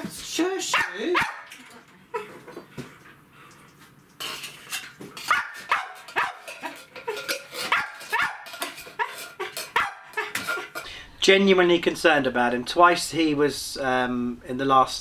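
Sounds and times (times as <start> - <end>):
dog yapping: 0.7 - 1.6, 5.3 - 6.8, 7.6 - 10.7.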